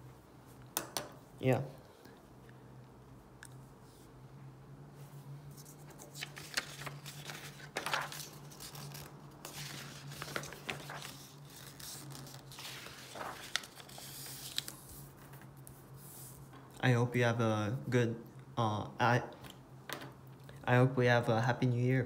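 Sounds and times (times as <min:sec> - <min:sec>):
paper rustling and crinkling: 0:05.5 - 0:16.5.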